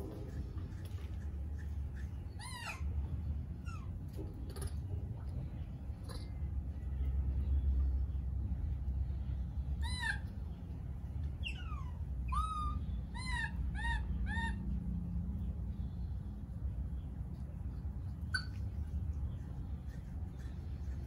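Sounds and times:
baby monkey high-pitched coos: 2.0s - 4.8s, 6.0s - 6.4s, 9.8s - 10.5s, 11.4s - 15.0s, 18.2s - 18.8s.

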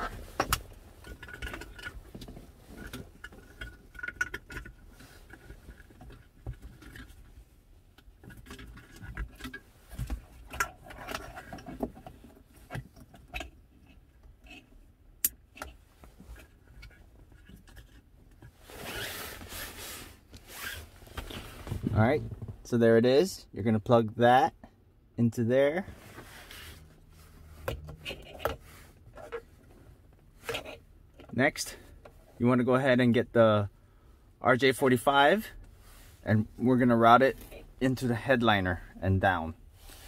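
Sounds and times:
scrape: 18.6s - 21.9s, 25.9s - 27.6s, 39.8s - 40.0s.

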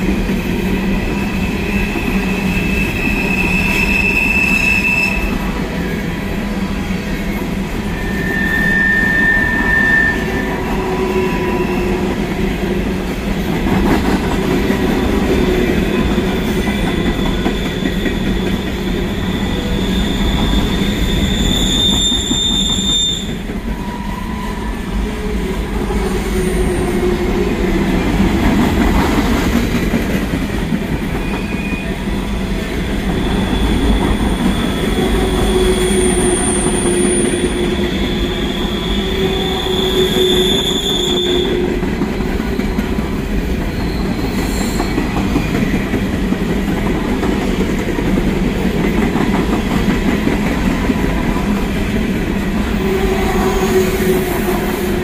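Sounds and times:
freight train cars rumbling: 0.0s - 55.0s
steel wheel squeal: 0.8s - 6.0s, 7.1s - 12.2s, 15.6s - 27.7s, 31.2s - 45.8s.

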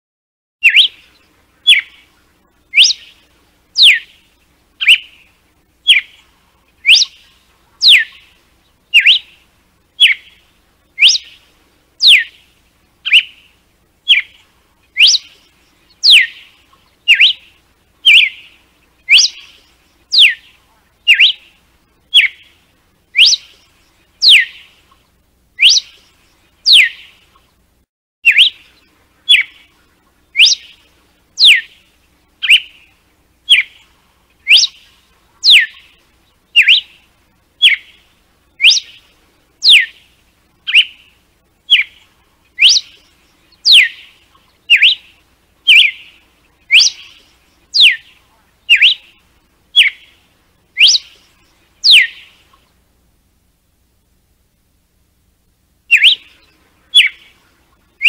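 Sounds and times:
bird singing whistled notes: 0.6s - 25.0s, 25.6s - 27.5s, 28.2s - 52.7s, 55.9s - 58.0s.

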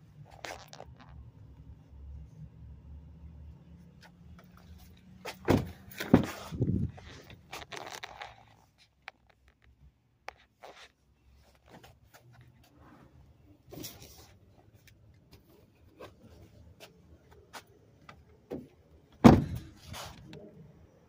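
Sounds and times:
heavy door thunks: 5.4s - 6.5s, 19.2s - 19.7s.

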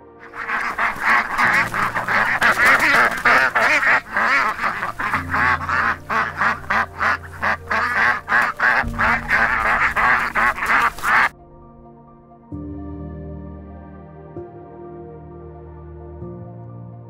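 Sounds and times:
goslings peeping: 0.2s - 11.3s.

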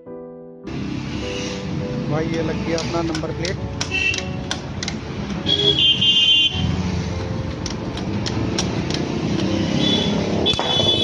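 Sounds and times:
street traffic engines: 0.7s - 11.0s
spanner clicks: 2.8s - 5.5s, 7.2s - 9.6s.

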